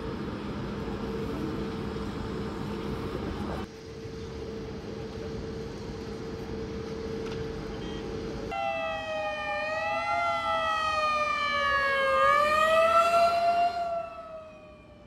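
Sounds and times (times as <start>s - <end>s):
fire engine siren wailing: 8.5s - 15.0s.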